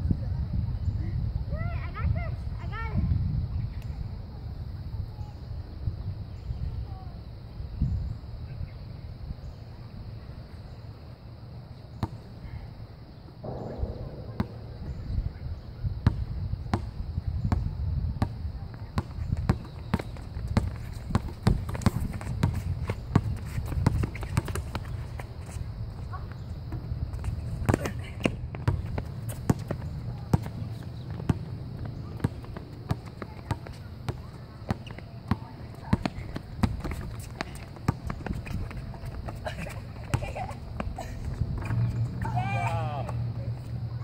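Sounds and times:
steady low rumble: 13.4 - 18.7
basketball bouncing on hard court: 16.0 - 16.9, 19.0 - 25.0, 26.8 - 39.3.

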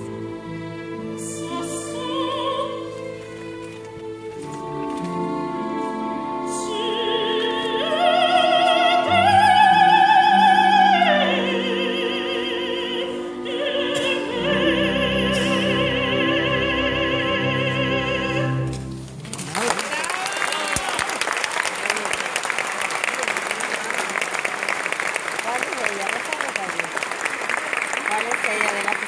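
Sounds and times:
orchestra playing: 0.0 - 20.6
operatic soprano singing: 0.1 - 3.7, 4.6 - 18.8.

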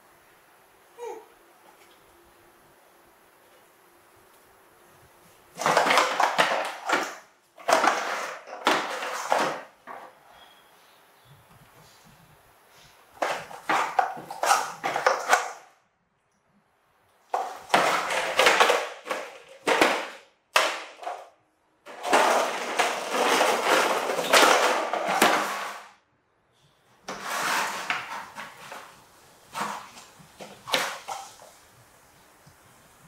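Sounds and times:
plastic toy truck rolling: 5.5 - 10.5, 13.1 - 15.7, 17.3 - 21.3, 21.9 - 26.0, 27.0 - 31.8.

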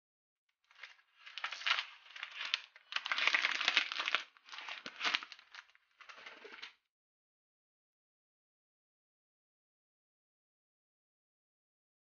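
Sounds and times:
plastic wrap crinkling: 0.7 - 6.8.

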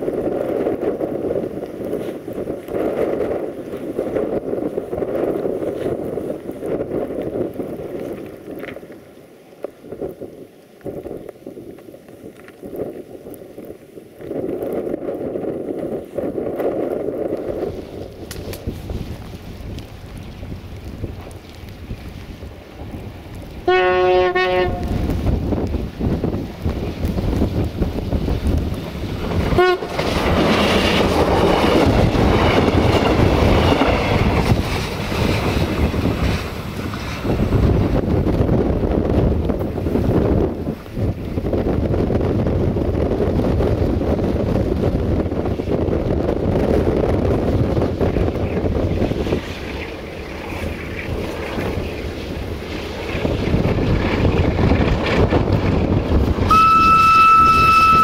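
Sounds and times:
wind gusting against microphone: 0.0 - 58.0
train running past: 17.5 - 42.0, 43.0 - 58.0
train horn toot: 23.6 - 25.0, 29.5 - 30.0, 56.5 - 58.0.

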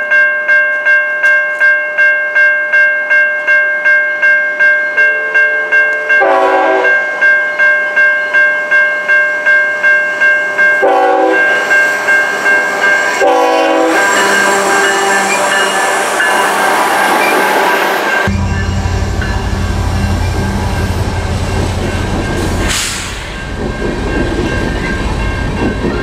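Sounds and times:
level-crossing warning bell: 0.0 - 26.0
locomotive air horn blasts: 6.2 - 7.0, 10.8 - 11.5, 13.2 - 15.9.

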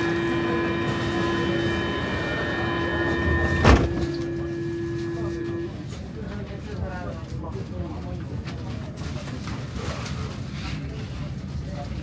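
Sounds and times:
steady warning tone: 0.0 - 5.7
train car rumble: 0.0 - 7.0
train doors shutting thud: 1.3 - 5.0.

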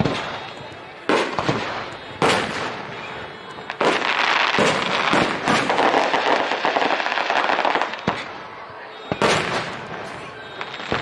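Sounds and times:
fireworks crackling: 0.0 - 11.0.

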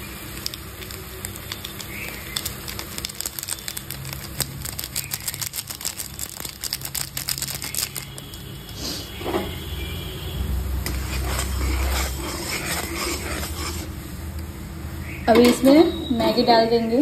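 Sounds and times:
foil sachet crinkling: 0.0 - 8.8.

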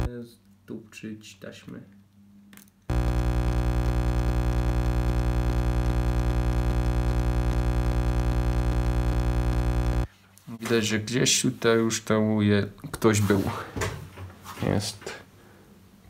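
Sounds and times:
steady fluttering buzz tone: 2.9 - 10.1.

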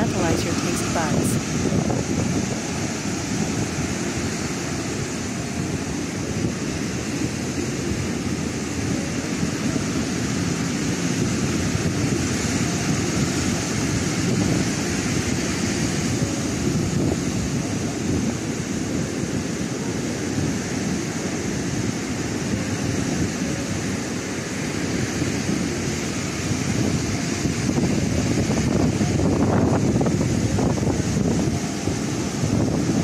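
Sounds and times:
ocean surf breaking: 0.0 - 33.0
wind on microphone: 0.0 - 33.0.

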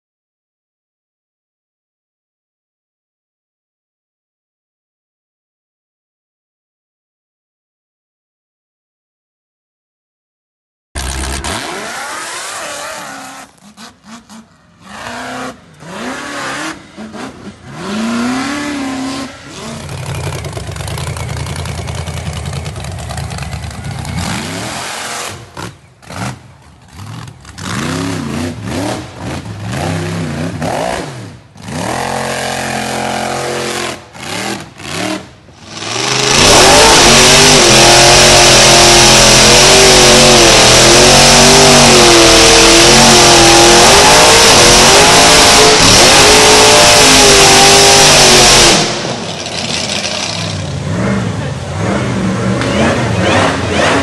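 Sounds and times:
buggy engines revving: 11.0 - 54.0.

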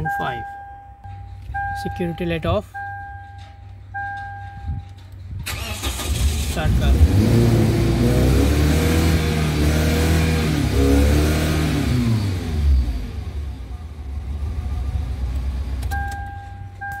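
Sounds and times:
steady electronic beep: 0.0 - 4.9
car engine revving then idling: 5.5 - 15.8.

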